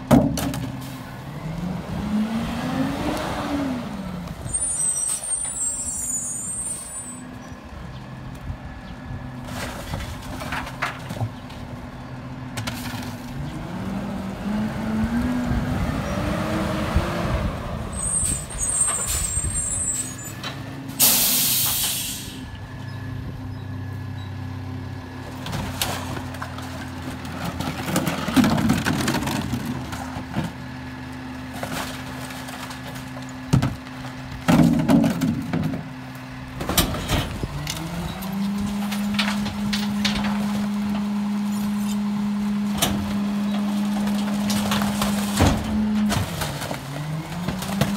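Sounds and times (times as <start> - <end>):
truck diesel engine: 0.0 - 47.9
air brakes hissing: 21.0 - 22.5.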